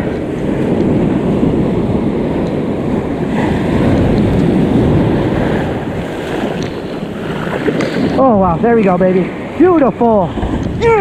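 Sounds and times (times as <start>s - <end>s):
ocean surf breaking: 0.0s - 11.0s
wind rumbling on microphone: 0.0s - 11.0s.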